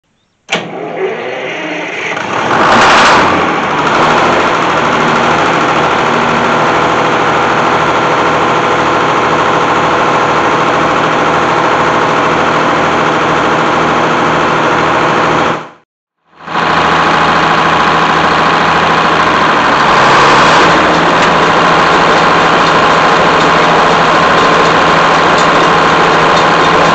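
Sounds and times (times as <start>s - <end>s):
diesel engine cranking and running: 0.5s - 26.9s.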